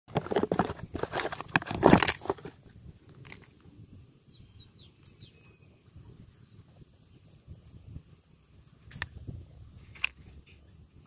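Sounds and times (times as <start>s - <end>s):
crackling and crunching: 0.1s - 3.6s
faint high bird-like chirps: 3.9s - 8.0s.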